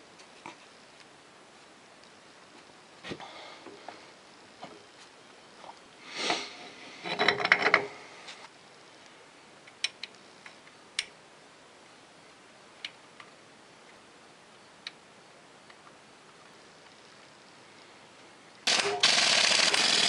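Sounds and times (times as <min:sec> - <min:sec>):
metal wheel spacer clanking: 0:07.0 - 0:08.0.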